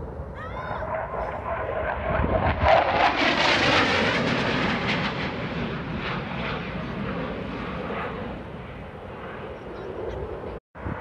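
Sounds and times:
jet engine roar: 0.0s - 11.0s.

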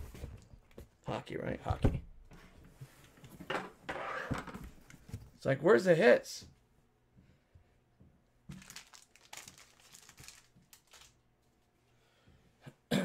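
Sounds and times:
crinkling and rustling: 8.4s - 11.7s.

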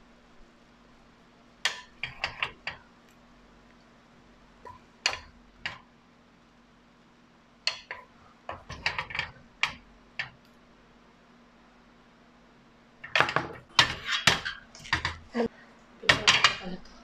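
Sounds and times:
spatula knocking ceramic dishes: 16.1s - 16.8s.

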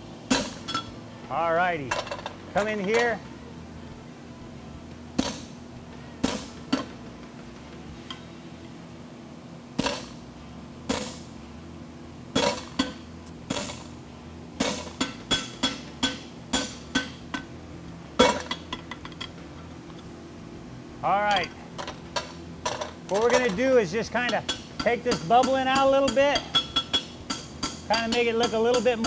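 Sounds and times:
hammer clanging on anvil tool: 14.6s - 17.5s, 24.2s - 29.0s.

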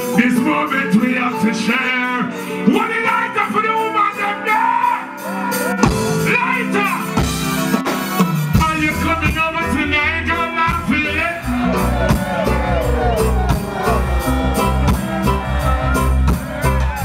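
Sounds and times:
man singing into a microphone: 0.0s - 5.1s
reggae band playing: 0.0s - 17.0s
heavy bass line: 8.5s - 17.0s.

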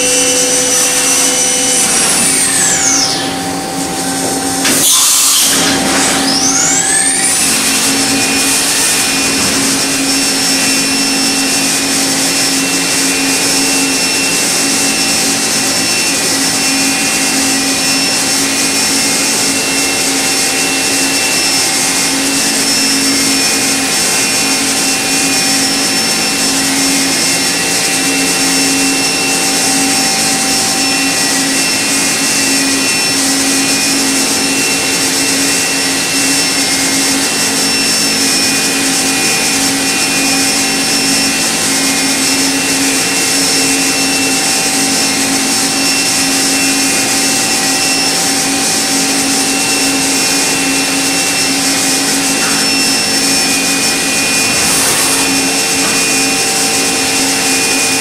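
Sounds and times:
machine spindle whine: 0.0s - 58.0s.

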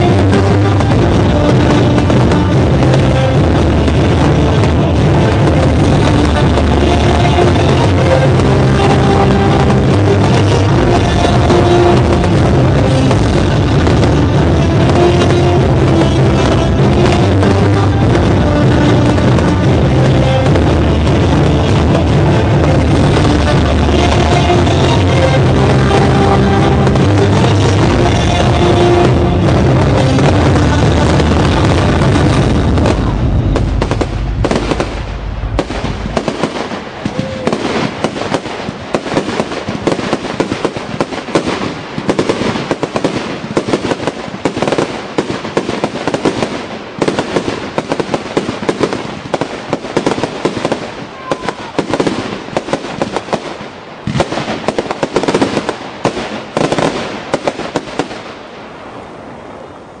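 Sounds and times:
heavy low booms: 0.0s - 38.9s
fireworks crackling and banging: 0.0s - 59.4s.

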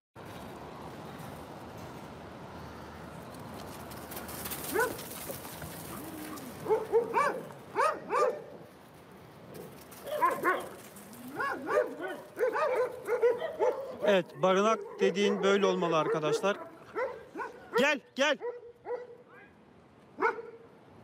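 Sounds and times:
dogs barking: 4.6s - 5.1s, 5.8s - 8.6s, 9.6s - 19.2s, 20.2s - 20.6s.

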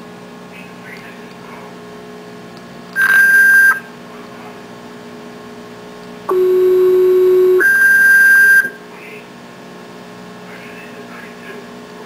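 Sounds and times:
dispatch alert tones over radio: 3.0s - 3.9s.

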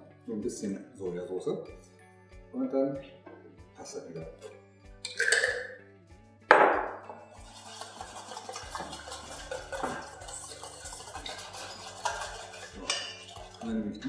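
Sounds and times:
soft background music: 0.0s - 14.0s
spoon scraping metal bowl: 7.2s - 14.0s.

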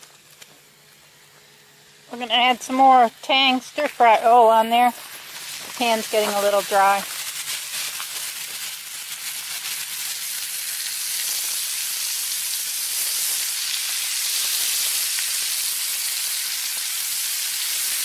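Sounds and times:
food sizzling in skillet: 0.0s - 18.0s.

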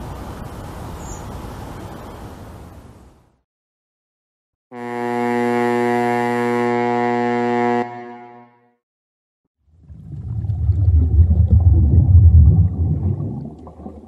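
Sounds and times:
ship's horn blast: 4.7s - 8.8s.

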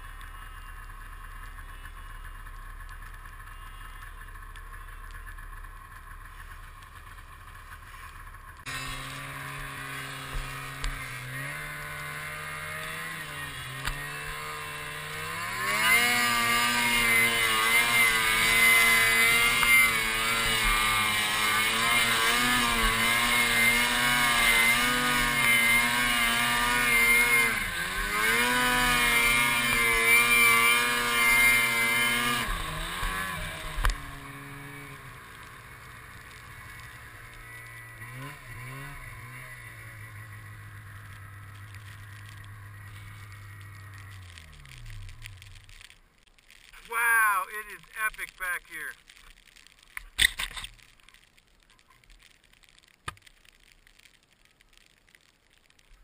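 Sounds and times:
snowmobile engine revving: 0.0s - 45.9s, 46.7s - 49.0s.

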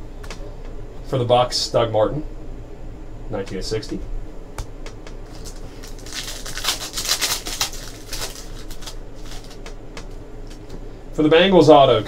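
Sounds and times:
foil wrapper crinkling: 5.2s - 10.6s.

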